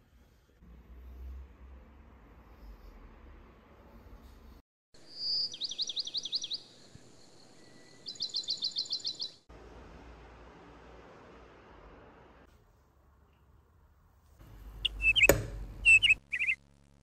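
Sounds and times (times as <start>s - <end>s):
songbird singing: 5.0s - 9.5s, 14.8s - 16.6s.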